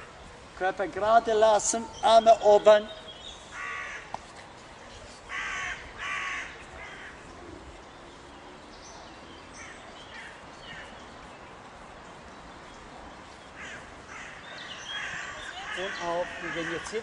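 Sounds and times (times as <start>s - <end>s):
crow cawing: 3.6s - 4.1s, 5.3s - 7.2s, 13.6s - 17.0s.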